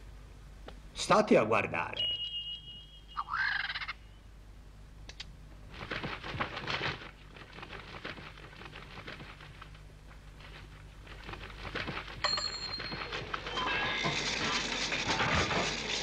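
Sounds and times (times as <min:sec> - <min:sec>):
wings rustling and flapping: 0:05.7 - 0:16.0.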